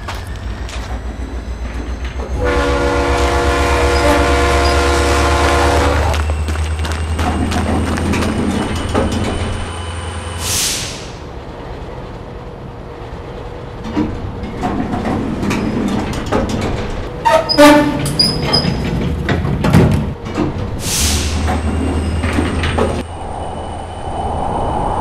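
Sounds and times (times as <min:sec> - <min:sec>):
locomotive engine rumble: 0:00.0 - 0:25.0
sharp hiss: 0:10.4 - 0:11.2
metallic clanks and knocks: 0:13.8 - 0:20.8.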